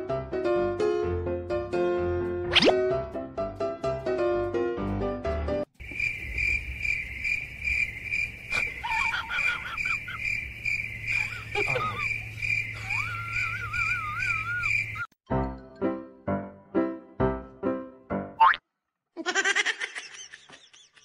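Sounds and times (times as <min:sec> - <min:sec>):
light piano music: 0:00.0 - 0:05.7, 0:15.3 - 0:18.4
cricket chirping: 0:05.8 - 0:15.2.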